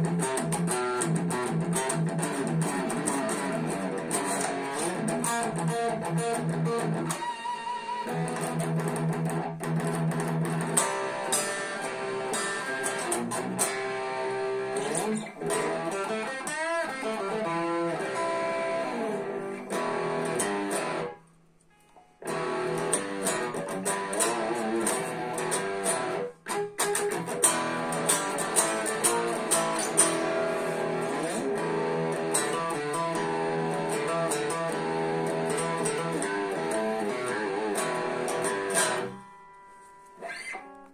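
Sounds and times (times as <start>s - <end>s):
electric guitar picked notes and riffs: 0.0s - 40.9s.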